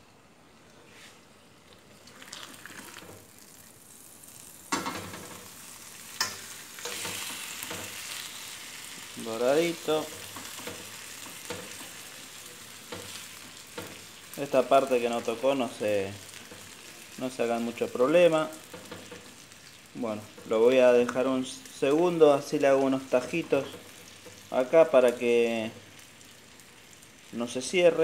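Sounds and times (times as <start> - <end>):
meat sizzling on griddle: 1.9 - 28.0.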